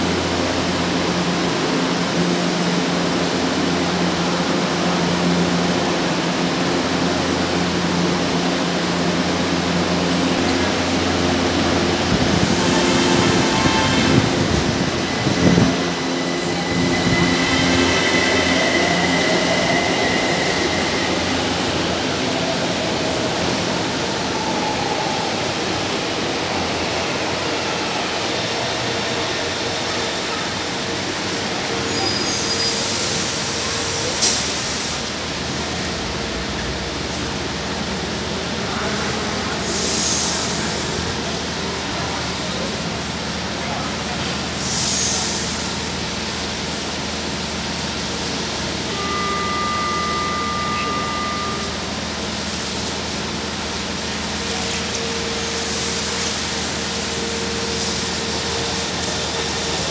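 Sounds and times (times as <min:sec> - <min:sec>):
train rumbling and braking: 0:00.0 - 0:59.9
train traction motors whining: 0:00.0 - 0:59.9
high hissing bursts: 0:11.8 - 0:21.4.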